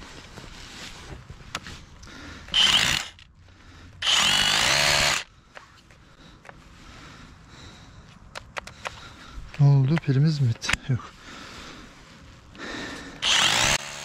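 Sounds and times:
battery drill whining against rock: 0:02.4 - 0:03.3, 0:04.0 - 0:05.3, 0:13.2 - 0:14.0.

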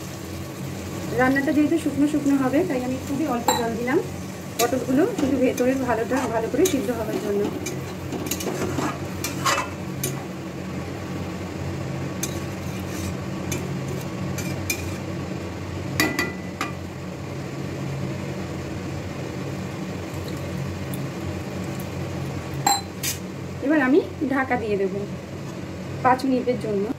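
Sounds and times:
spatula clinking and scraping pan: 0:04.6 - 0:10.2, 0:12.2 - 0:15.0.

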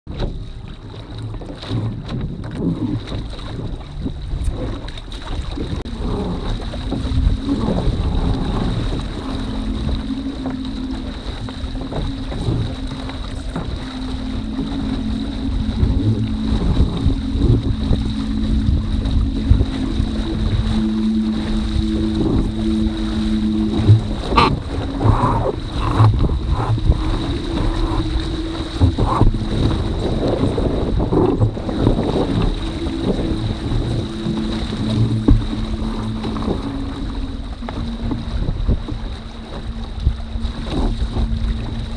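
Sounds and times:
water rushing past hull: 0:00.1 - 0:41.9
wind buffeting microphone: 0:00.1 - 0:41.9
steady low hum: 0:05.7 - 0:41.9.

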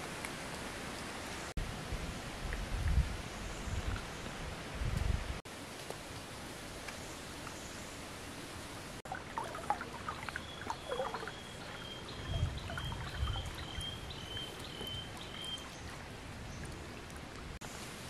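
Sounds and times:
river water lapping and trickling: 0:08.0 - 0:18.0
small water splashes: 0:09.0 - 0:17.6.

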